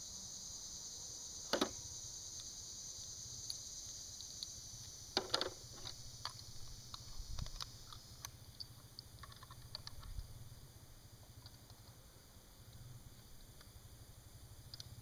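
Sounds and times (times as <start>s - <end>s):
high insect trill: 0.0s - 15.0s
small clicks and taps: 4.2s - 10.2s, 14.7s - 15.0s.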